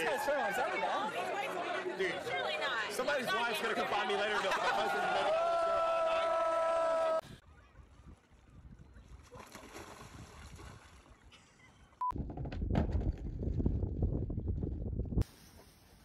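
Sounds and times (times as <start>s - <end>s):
choppy water: 7.3s - 12.0s
faint water noise: 7.3s - 12.1s
wind buffeting microphone: 12.2s - 15.2s.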